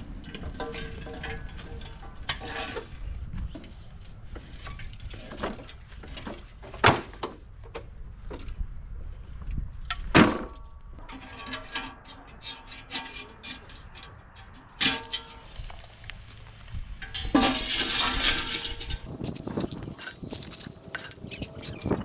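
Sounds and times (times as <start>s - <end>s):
metal clanks and knocks: 0.2s - 3.7s, 9.9s - 15.6s, 17.0s - 22.0s.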